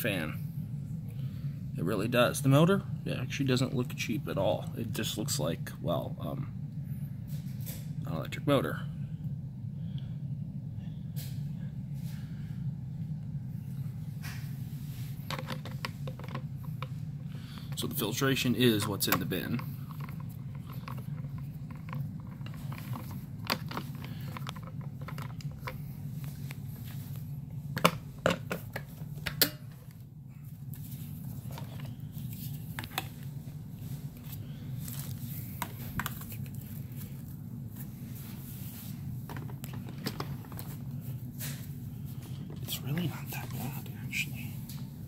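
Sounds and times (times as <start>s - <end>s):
steady low hum: 0.0s - 45.0s
plastic parts clicking and knocking: 15.2s - 16.9s, 18.8s - 25.8s.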